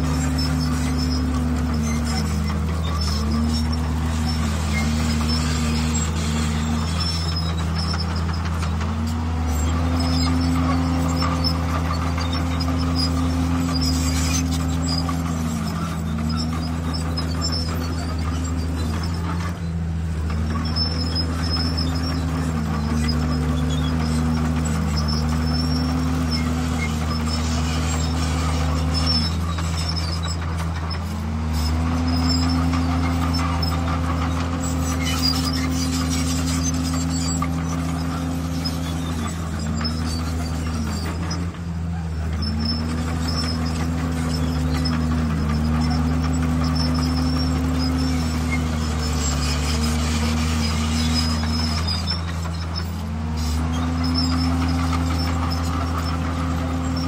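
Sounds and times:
heavy diesel engine droning: 0.0 - 57.0.

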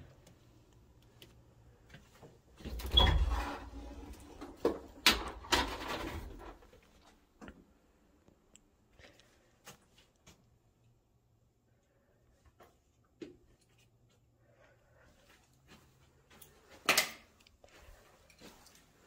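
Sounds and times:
door scraping open with squeak: 2.7 - 4.1.

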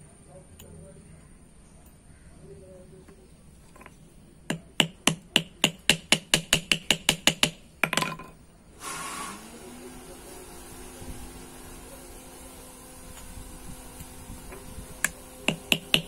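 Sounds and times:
hammer tapping metal rivets: 3.7 - 8.4.

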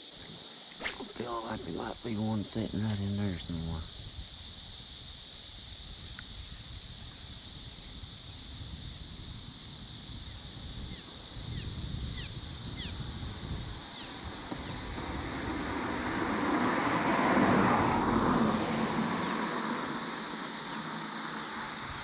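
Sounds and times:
cicada chorus drone: 0.0 - 22.0
vehicle passing: 14.2 - 22.0.

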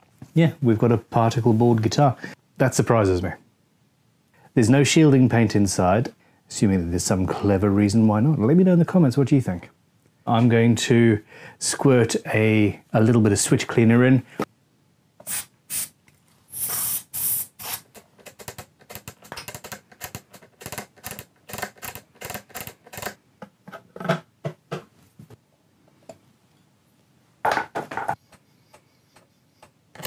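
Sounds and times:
aerosol spray hissing: 15.2 - 17.8.

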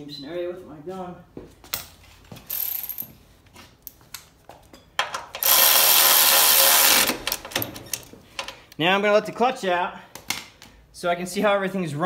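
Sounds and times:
electric ratchet spinning: 2.5 - 3.1, 5.4 - 7.7.

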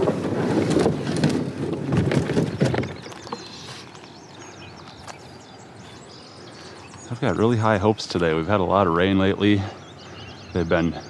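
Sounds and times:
kayak hull scraping over gravel: 0.0 - 6.0.

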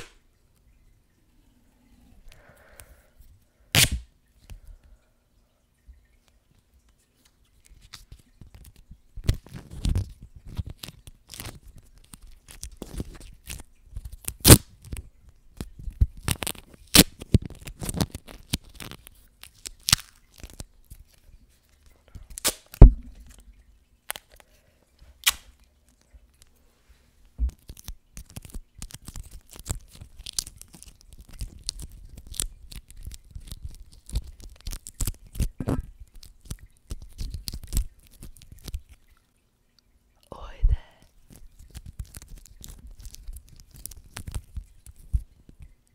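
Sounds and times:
adhesive tape ripping: 3.7 - 4.1, 14.2 - 14.7, 16.2 - 20.6, 22.4 - 23.0, 25.2 - 25.5.

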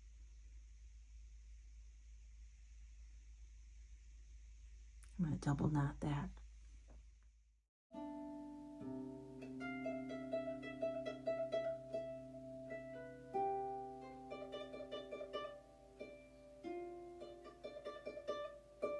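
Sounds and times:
plucked instrumental tune: 7.9 - 18.9.

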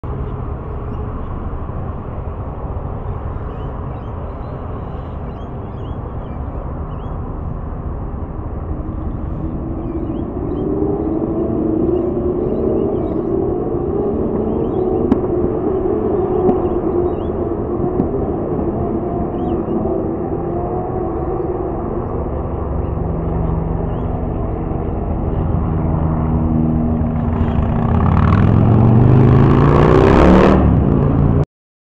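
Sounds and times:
steady low rumble: 0.0 - 29.5
tram hum approaching: 0.0 - 29.5
faint bird chirps: 3.0 - 7.2, 8.8 - 15.1.

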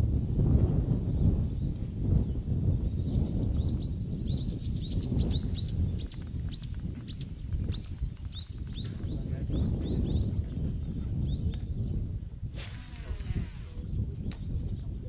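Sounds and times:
small bird chirping: 1.2 - 12.0.

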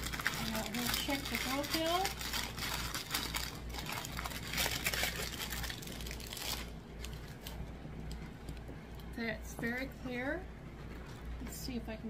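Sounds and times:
plastic bags crinkling and rustling: 0.0 - 8.2.

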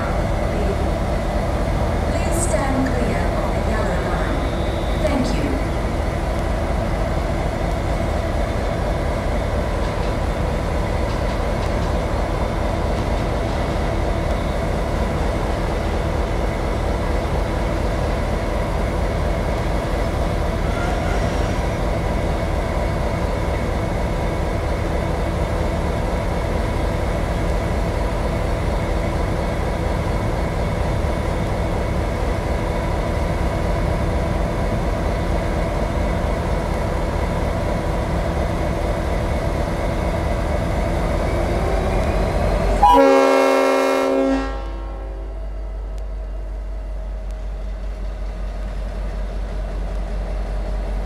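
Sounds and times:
air horn blast: 42.8 - 45.3.

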